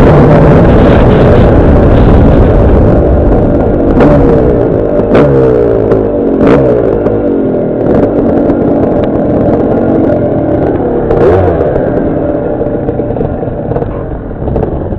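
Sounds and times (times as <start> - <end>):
dirt bike engine revving: 3.8 - 8.6, 11.0 - 12.4.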